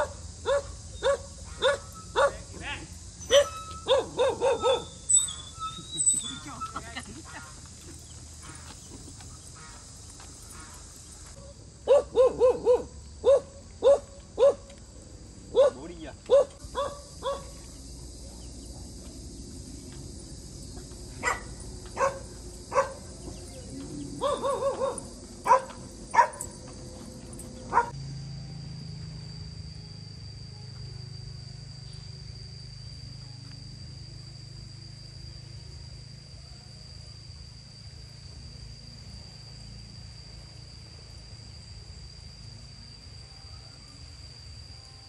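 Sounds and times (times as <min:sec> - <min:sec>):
dog barking: 0:00.0 - 0:02.5, 0:03.3 - 0:05.4, 0:11.9 - 0:14.7, 0:15.5 - 0:17.6, 0:21.2 - 0:26.6, 0:27.6 - 0:28.0
steady low hum: 0:00.0 - 0:45.0.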